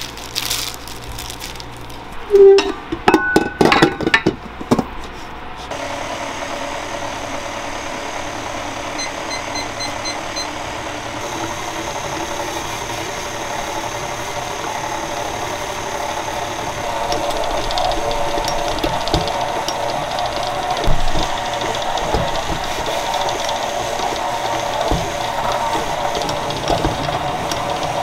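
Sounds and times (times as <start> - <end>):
stand mixer motor running: 5.7 - 28.0.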